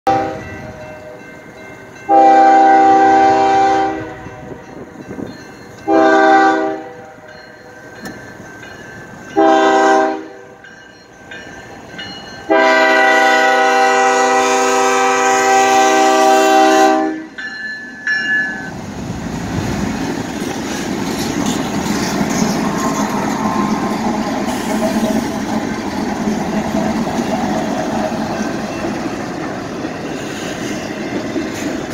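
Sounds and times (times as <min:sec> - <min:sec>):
locomotive horn blasts: 0:00.0 - 0:00.7, 0:02.1 - 0:04.6, 0:05.9 - 0:07.2, 0:09.4 - 0:10.6, 0:12.5 - 0:17.4
train rumble and rail clatter: 0:00.1 - 0:31.9.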